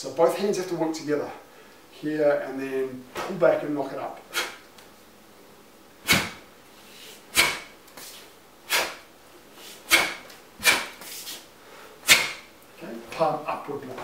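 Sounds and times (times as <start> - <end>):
sharp swishes of uniform: 6.0 - 9.0, 9.6 - 11.5, 12.1 - 12.5.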